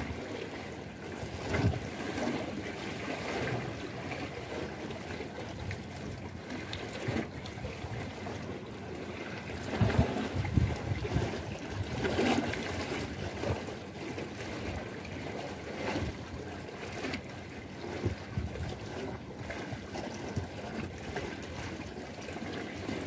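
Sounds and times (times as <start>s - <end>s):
water splashing against concrete wall: 0.0s - 23.0s.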